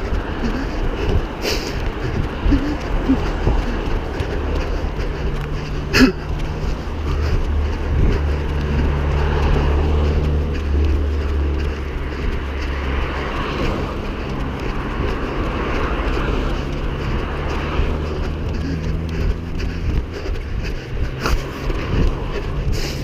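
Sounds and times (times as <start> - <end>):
engine droning low: 0.0 - 23.0
steady rushing noise: 0.0 - 23.0.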